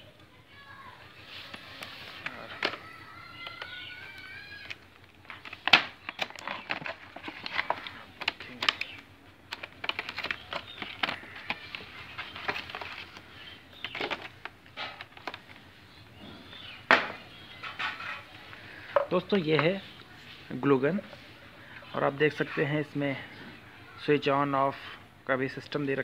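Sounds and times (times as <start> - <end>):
plastic packaging crackling: 1.2 - 15.8.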